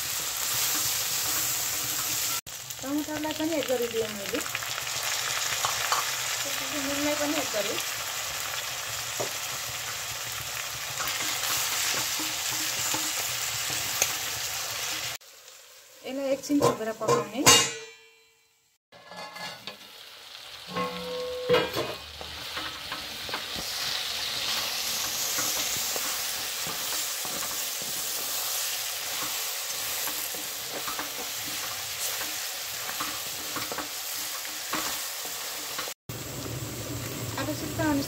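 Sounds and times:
meat sizzling in a pan: 0.0s - 17.0s, 19.1s - 38.0s
metal lid clinking: 19.0s - 19.8s, 20.7s - 23.1s.

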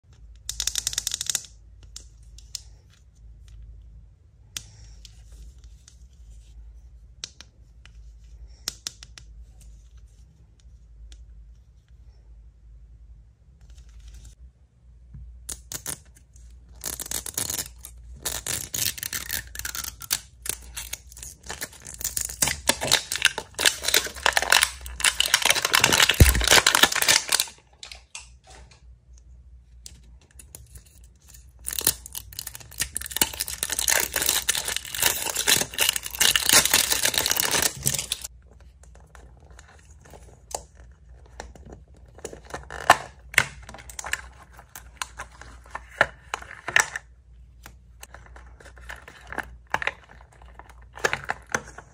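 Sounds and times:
plastic wrapper crinkling and ripping: 16.7s - 28.2s, 31.6s - 38.3s, 38.9s - 46.9s.

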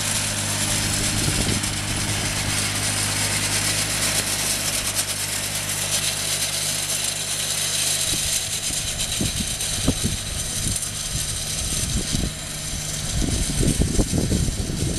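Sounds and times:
diesel engine running: 0.0s - 14.9s.

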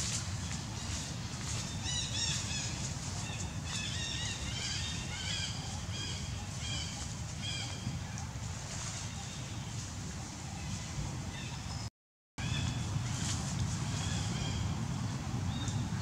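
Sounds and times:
birds chirping: 0.3s - 8.0s.

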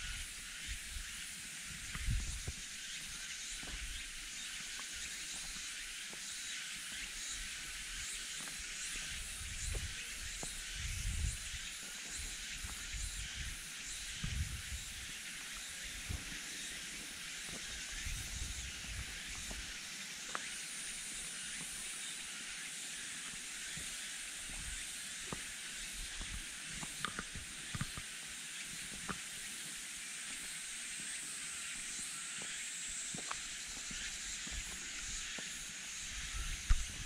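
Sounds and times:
high-pitched insect chorus: 0.0s - 37.0s
footsteps on dirt trail: 1.7s - 7.1s, 17.1s - 20.5s, 30.3s - 37.0s.

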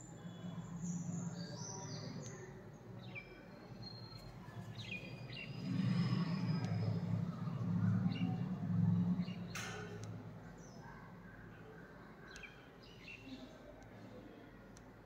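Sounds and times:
small birds chirping: 0.0s - 14.0s
low hum: 4.2s - 11.8s.

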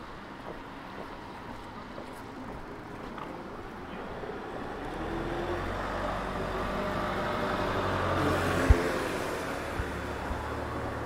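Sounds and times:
vehicle engine passing: 4.9s - 11.0s.

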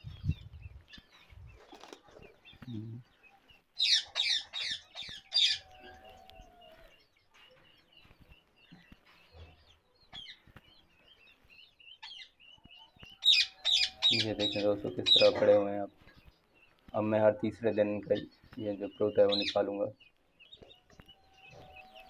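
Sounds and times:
parakeets chirping: 0.0s - 6.0s, 13.0s - 22.0s
parakeets squawking: 3.8s - 5.8s, 13.2s - 15.7s, 19.0s - 19.8s.

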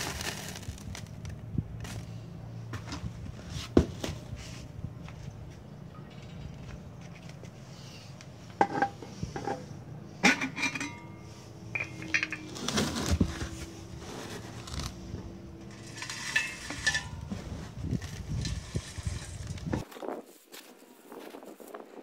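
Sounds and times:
metal can knocking and clanking: 11.8s - 13.3s.

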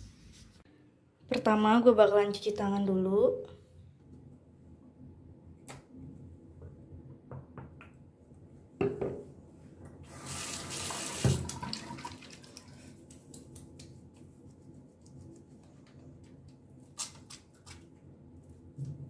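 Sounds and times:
knock: 8.8s - 9.2s
tap water running into sink: 10.2s - 12.7s
rubbing of wet hands: 12.4s - 16.3s.

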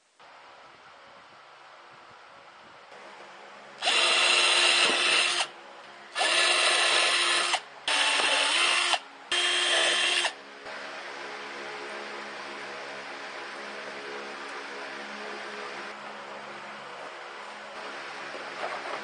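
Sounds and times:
cordless drill boring into wood: 3.8s - 5.5s, 6.2s - 10.3s.

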